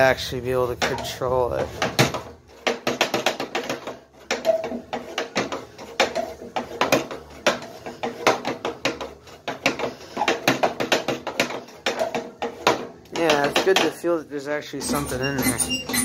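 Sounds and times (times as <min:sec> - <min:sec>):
short squeaks: 0:14.8 - 0:16.0.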